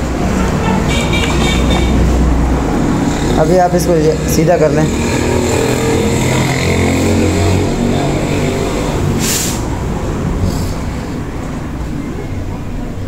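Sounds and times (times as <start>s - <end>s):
short sharp hiss: 9.2s - 9.7s.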